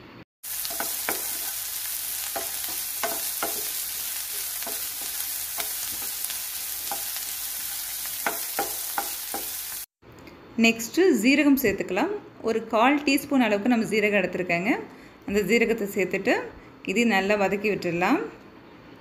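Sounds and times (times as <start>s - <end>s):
onion sizzling in hot oil: 0.4s - 10.0s.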